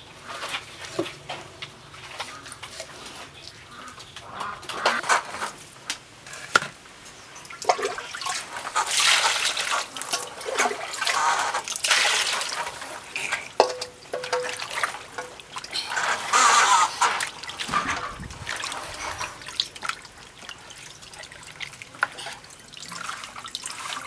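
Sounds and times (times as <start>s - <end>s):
water sloshing in a basin: 7.4s - 24.0s.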